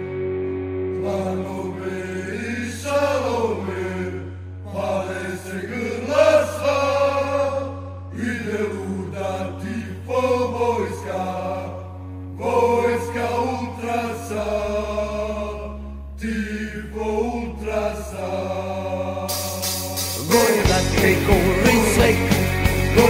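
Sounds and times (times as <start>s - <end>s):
bass drone: 0.0s - 23.0s
voices chanting in unison: 1.0s - 22.3s.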